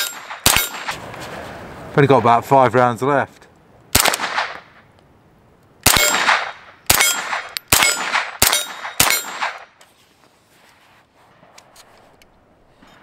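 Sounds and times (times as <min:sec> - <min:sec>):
suppressed gunshots: 0:00.0 - 0:01.1, 0:03.9 - 0:04.8, 0:05.8 - 0:09.8.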